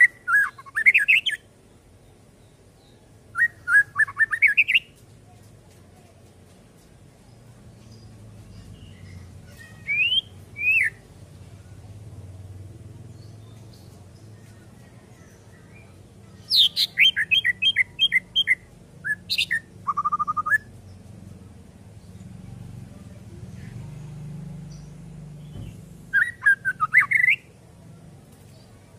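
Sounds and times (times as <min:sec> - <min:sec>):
songbird calling: 0:00.0 - 0:05.0, 0:07.8 - 0:11.1, 0:13.2 - 0:21.0, 0:24.7 - 0:27.5.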